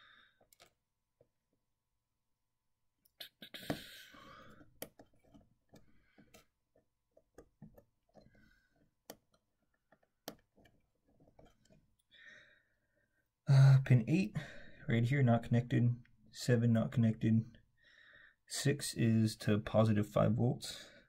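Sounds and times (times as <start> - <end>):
wire leads clicking and scratching: 0.4 - 1.3, 3.0 - 12.2
soft breath: 12.1 - 13.3, 17.8 - 18.4.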